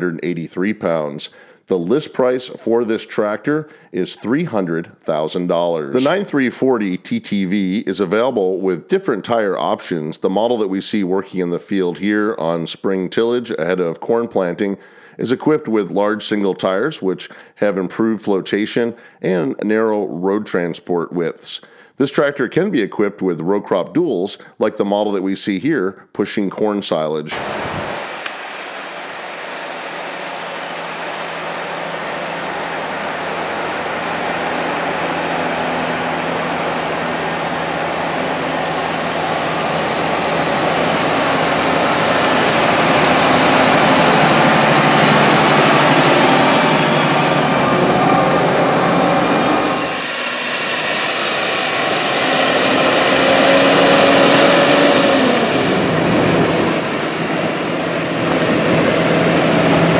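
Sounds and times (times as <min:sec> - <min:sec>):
tractor diesel engine under load: 0:05.9 - 0:06.6, 0:27.4 - 0:59.9.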